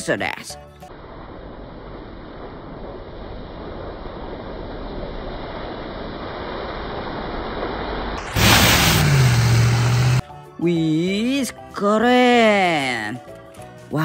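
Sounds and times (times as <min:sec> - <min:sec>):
tyres rushing through puddles: 0:07.8 - 0:10.2
loud low hum: 0:08.2 - 0:10.2.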